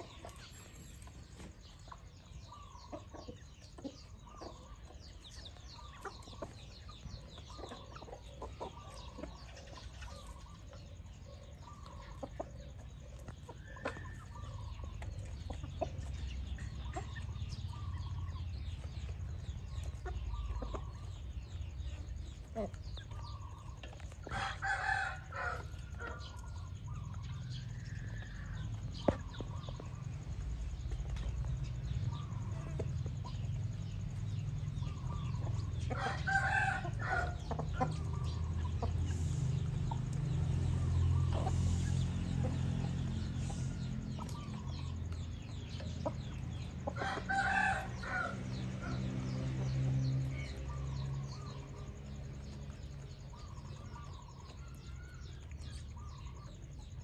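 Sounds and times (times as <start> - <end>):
hens clucking softly: 0.0 - 49.7
rooster crowing: 24.3 - 26.2, 35.9 - 37.4, 47.0 - 49.0
steady low rumble: 25.6 - 36.0, 36.8 - 47.0.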